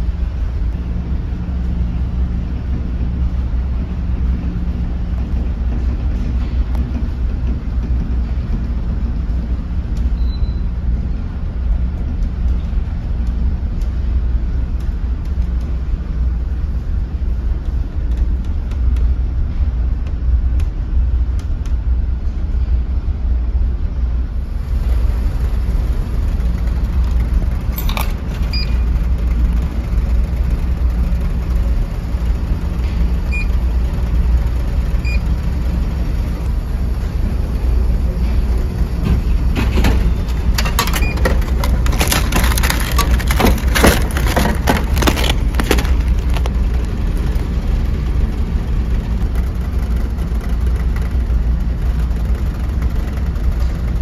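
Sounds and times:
ship engines rumbling: 0:24.2 - 0:54.0
clicks and rattles: 0:27.0 - 0:28.6, 0:39.6 - 0:47.0.

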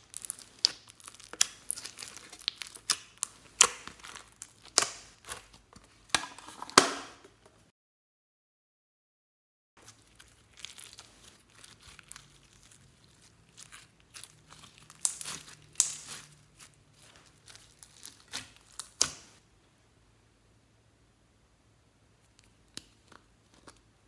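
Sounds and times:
crunchy slime crackling: 0:00.0 - 0:06.1, 0:09.8 - 0:19.4.

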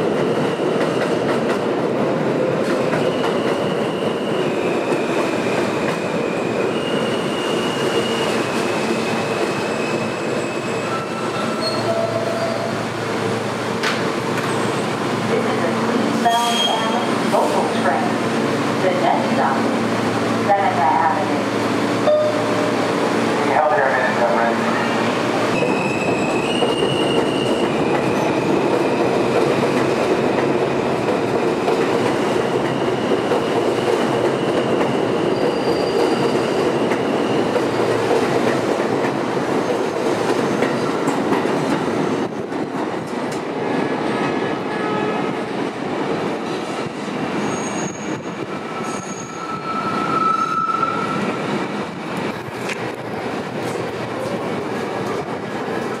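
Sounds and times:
high wheel squeals: 0:06.7 - 0:08.4, 0:09.0 - 0:12.8, 0:35.2 - 0:37.4, 0:47.4 - 0:51.2.

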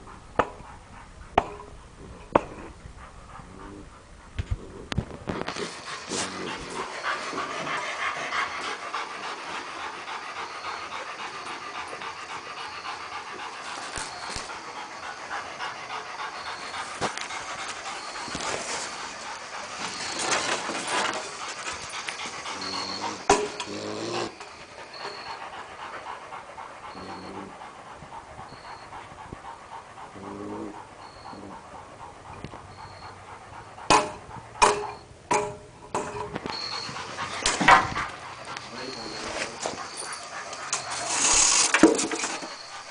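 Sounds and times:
dog panting: 0:00.0 - 0:42.9.

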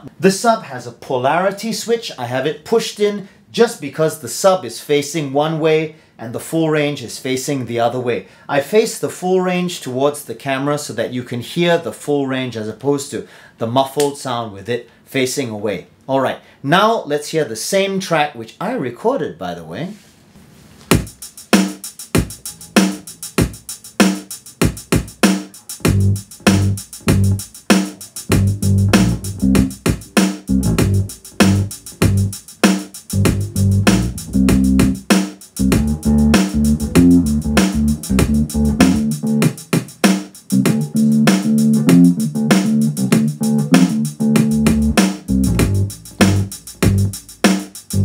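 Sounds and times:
programmed drum beat: 0:20.9 - 0:48.0
bass line with held low notes: 0:25.8 - 0:27.4, 0:28.3 - 0:29.9, 0:30.5 - 0:32.4, 0:33.1 - 0:35.0, 0:35.6 - 0:39.5, 0:40.5 - 0:47.2.

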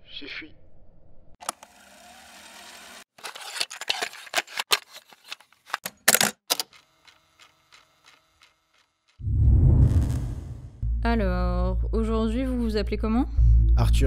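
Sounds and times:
cassette plastic clicks and clatter: 0:03.2 - 0:07.5.

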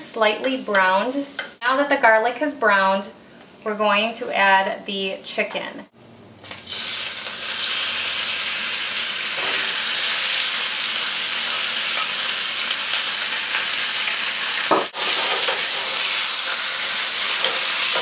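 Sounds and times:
chicken sizzling in hot oil: 0:06.4 - 0:18.0.

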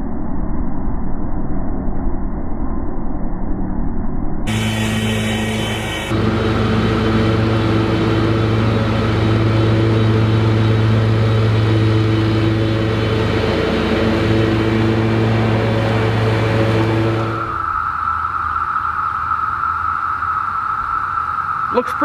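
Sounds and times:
mower engine running: 0:04.5 - 0:17.6.

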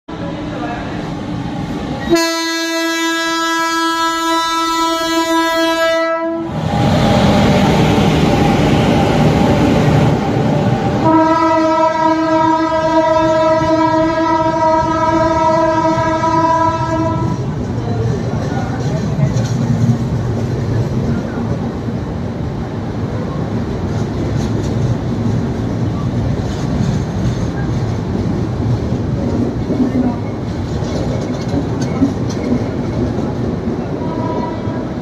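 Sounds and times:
train coaches rumbling on rails: 0:00.1 - 0:35.0
train horn blast: 0:02.1 - 0:06.6, 0:11.0 - 0:17.4, 0:34.0 - 0:34.9.

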